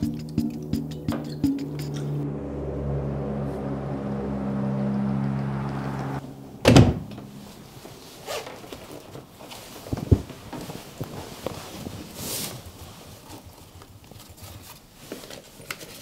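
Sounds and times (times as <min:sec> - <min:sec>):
background music chord: 0:00.0 - 0:06.6.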